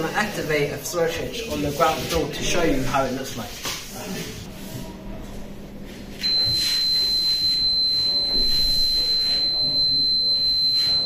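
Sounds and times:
fire alarm buzzer tone: 6.2 - 11.0.

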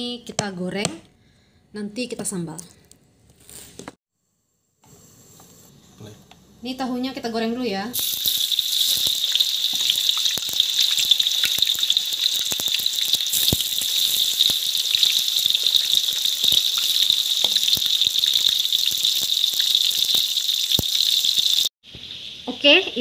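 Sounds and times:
tofu sizzling in hot oil: 7.9 - 23.0.

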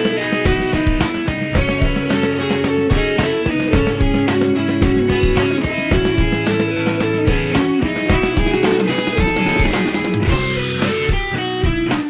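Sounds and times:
guitar notes: 0.0 - 12.0
drum hits: 2.9 - 12.0.

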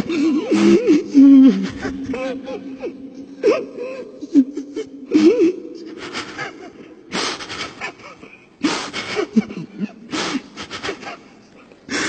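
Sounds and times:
person reciting: 0.0 - 6.9
man sobbing: 0.0 - 12.0.

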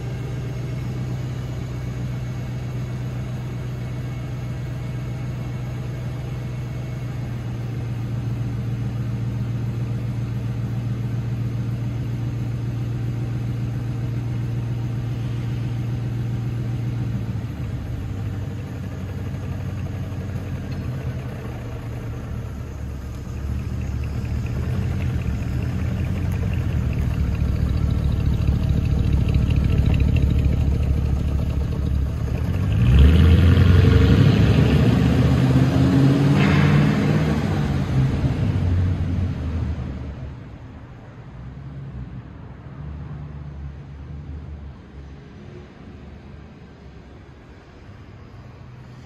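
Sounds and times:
car engine idling: 0.0 - 35.7.

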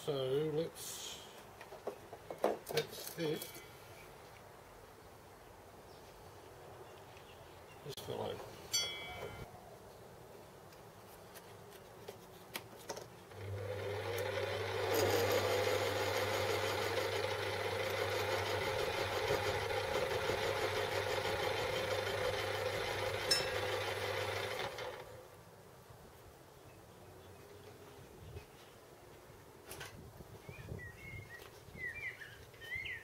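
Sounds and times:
motor hum: 13.3 - 25.2
metal lathe spinning: 13.4 - 25.0.

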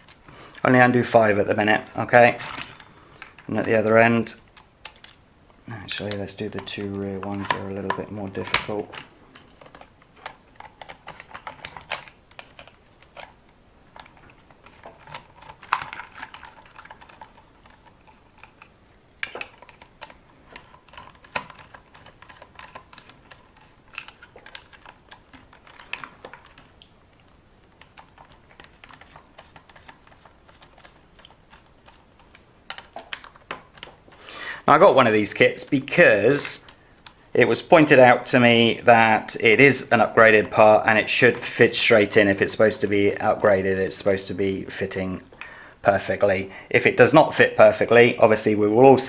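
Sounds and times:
screwdriver clicking on plastic: 14.0 - 26.9, 27.7 - 34.1.

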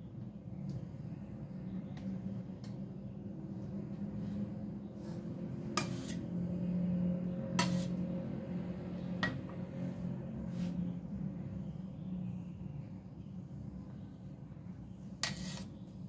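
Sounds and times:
steady low hum: 0.0 - 16.0
spatula scraping metal bowl: 5.7 - 6.3, 7.5 - 8.0, 15.2 - 15.8.

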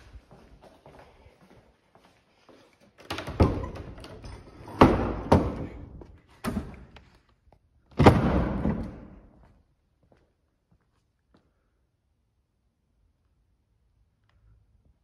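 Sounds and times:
heavy thuds and bangs echoing: 8.0 - 9.3.

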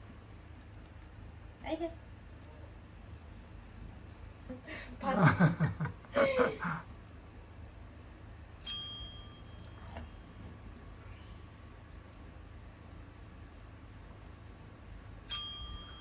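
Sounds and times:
person laughing: 4.6 - 6.9
desk call bell ding: 8.6 - 9.9, 15.2 - 16.0.

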